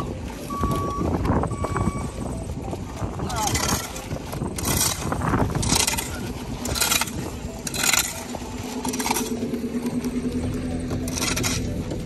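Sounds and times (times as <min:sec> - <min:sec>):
shovels scraping through gravel mix: 0:04.6 - 0:09.5, 0:11.0 - 0:11.7.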